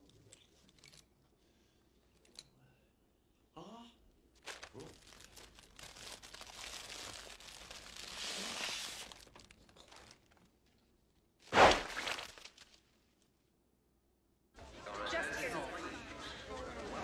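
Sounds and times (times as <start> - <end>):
paper bag crinkling: 4.4 - 10.8, 11.4 - 12.9
paper bag bursting pop: 11.4 - 12.8.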